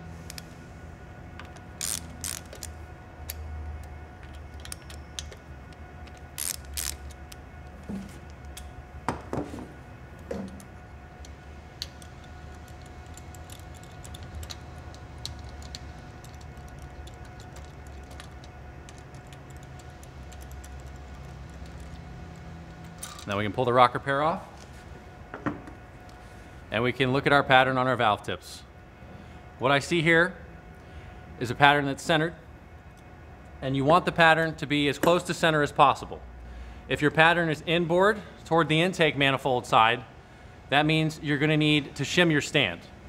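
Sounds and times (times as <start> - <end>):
low steady hum: 0.0 - 43.0
ratchet clicking and clinking: 11.8 - 22.0.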